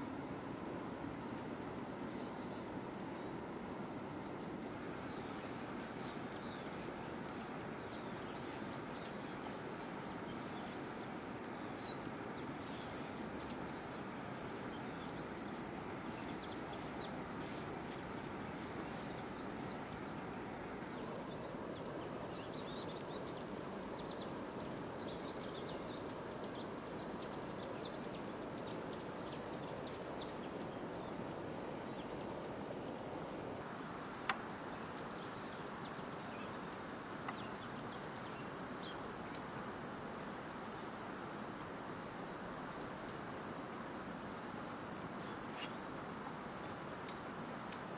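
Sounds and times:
outdoor background noise: 0.0 - 47.9
small birds chirping: 0.0 - 47.9
faint click: 34.2 - 35.1, 37.2 - 37.5.

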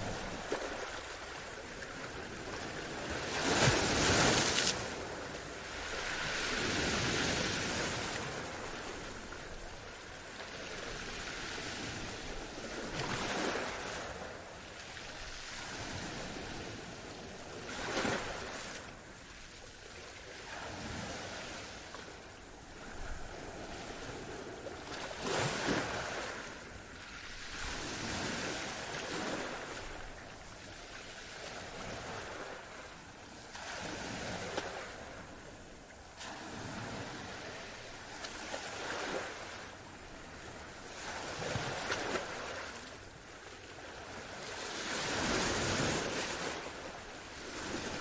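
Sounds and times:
waves breaking: 0.0 - 18.9, 22.9 - 48.0.

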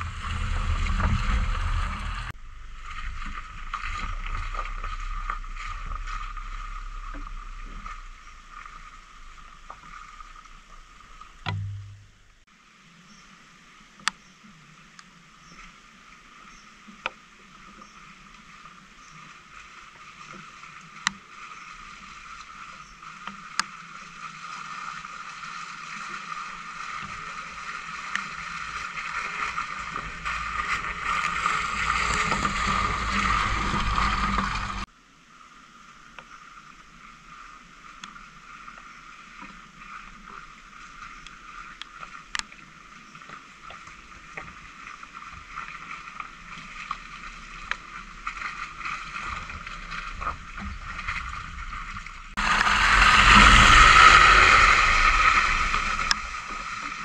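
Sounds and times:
car engine pulling slowly: 0.0 - 12.4, 26.6 - 34.9, 44.6 - 57.0.

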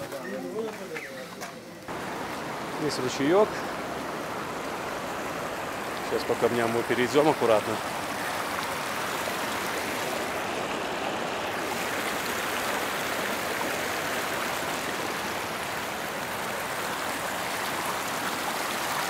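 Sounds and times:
stream rushing over rocks: 1.8 - 19.0.

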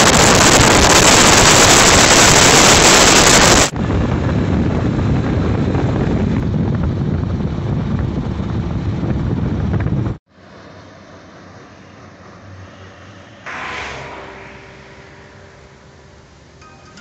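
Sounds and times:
wind rushing over microphone: 0.0 - 10.2
motorcycle road noise: 0.0 - 17.0.

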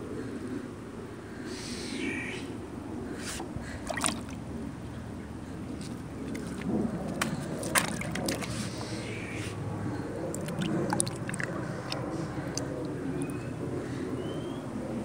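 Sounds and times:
water sloshing: 3.4 - 4.6, 5.7 - 9.0, 10.3 - 13.0.

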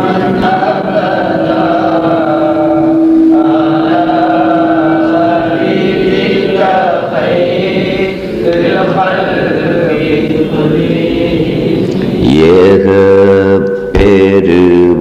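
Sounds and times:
group of voices chanting: 3.3 - 12.9.

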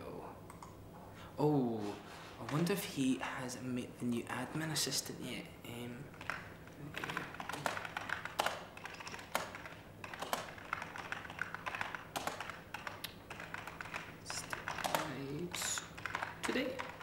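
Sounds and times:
keyboard key clicks: 6.2 - 17.0.

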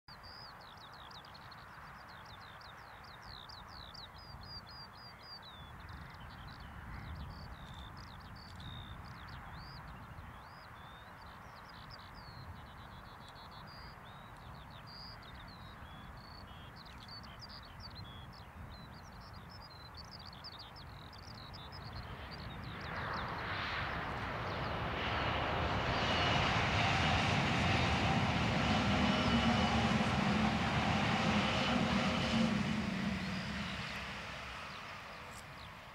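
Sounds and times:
electric train passing with whine: 24.1 - 35.9
skylark singing: 24.5 - 35.4.

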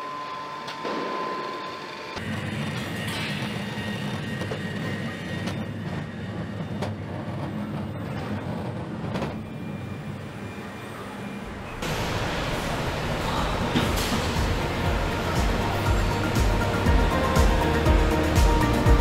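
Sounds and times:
low machinery rumble and hum: 11.5 - 19.0.

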